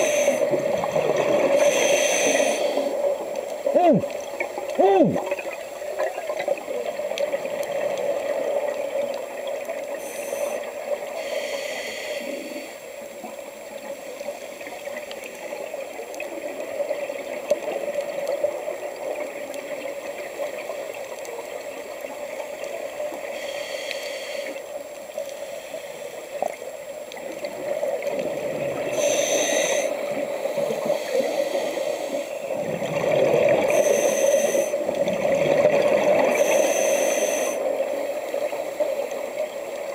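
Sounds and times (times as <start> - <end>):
steady watery rushing: 0.0 - 39.9
diver's exhaled bubbles gurgling: 32.5 - 33.9, 34.9 - 36.5.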